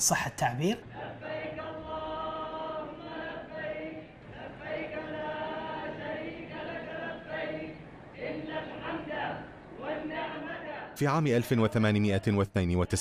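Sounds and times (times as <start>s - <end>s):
voices chanting in unison: 0.6s - 12.5s.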